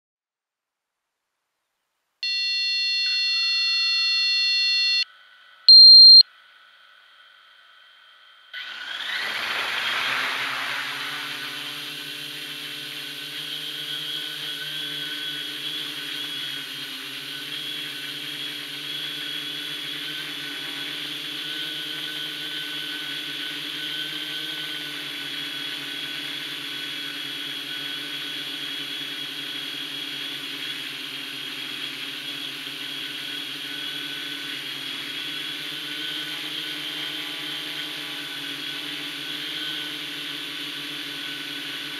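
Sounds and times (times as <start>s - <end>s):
high motor whine: 5.7s - 6.2s, 8.6s - 41.9s
drone propellers whirring: 8.6s - 41.9s.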